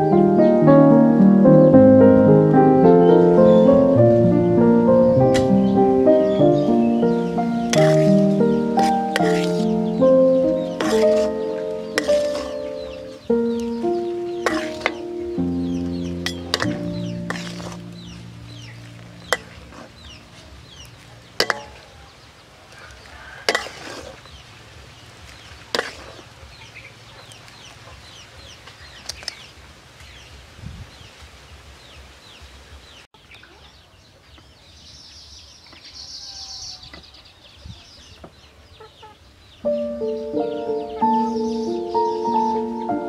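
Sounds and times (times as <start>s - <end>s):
chickens clucking: 2.8s - 24.4s, 35.7s - 43.0s.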